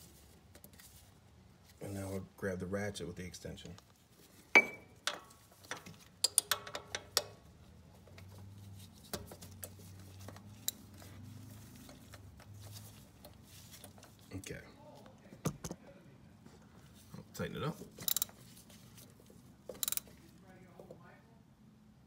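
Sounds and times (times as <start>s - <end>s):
ratchet clicks: 6.2s - 7.4s, 18.0s - 18.4s, 19.7s - 20.1s
metal hand tools clinking: 17.9s - 18.5s, 19.7s - 20.2s.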